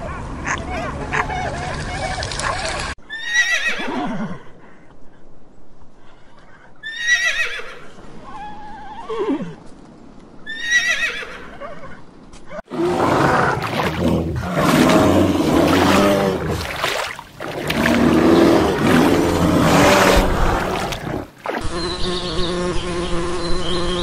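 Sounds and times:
rough low sound: 0:12.7 - 0:21.4.

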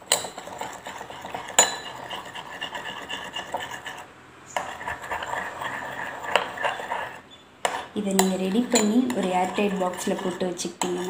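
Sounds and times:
metal spoon stirring gel: 0:00.0 - 0:11.0
spoon clinking against glass: 0:01.6 - 0:01.9.

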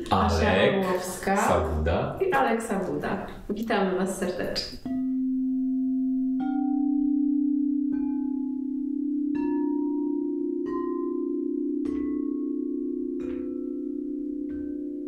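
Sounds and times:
crystal singing bowls ringing: 0:04.9 - 0:15.0.

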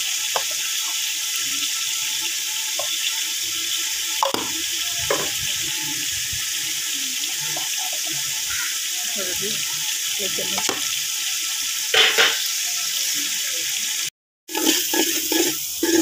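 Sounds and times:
oil sizzling in a pot: 0:00.0 - 0:16.0.

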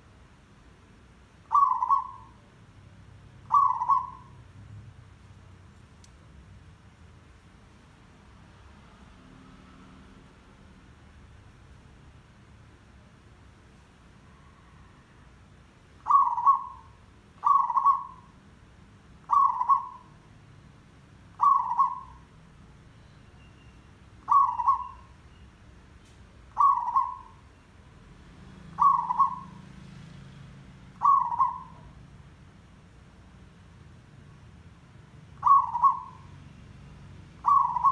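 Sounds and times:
dove cooing: 0:01.5 - 0:02.4, 0:03.5 - 0:04.4, 0:16.0 - 0:18.3, 0:19.3 - 0:20.1, 0:21.4 - 0:22.2, 0:24.3 - 0:25.1, 0:26.6 - 0:27.4, 0:28.7 - 0:29.7, 0:31.0 - 0:32.0, 0:35.4 - 0:36.3, 0:37.4 - 0:37.9.

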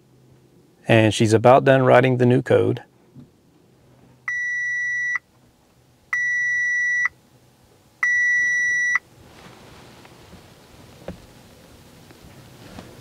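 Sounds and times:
car dashboard warning chime: 0:04.3 - 0:05.2, 0:06.1 - 0:07.1, 0:08.0 - 0:09.0.

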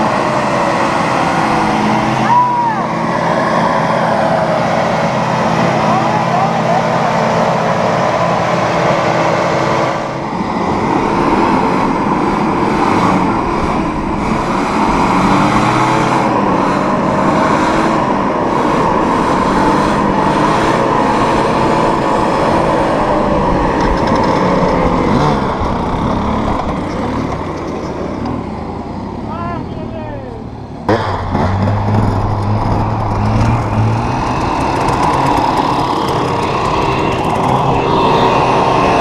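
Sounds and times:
dirt bike engines: 0:00.0 - 0:39.0
off-road engine revving: 0:00.0 - 0:39.0.

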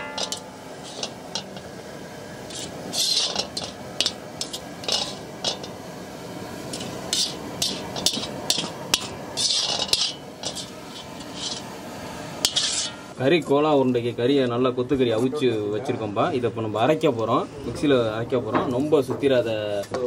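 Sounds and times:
sharp metal knocks: 0:00.0 - 0:01.6
metal ladle scraping iron pan: 0:00.0 - 0:01.8, 0:02.4 - 0:13.2.

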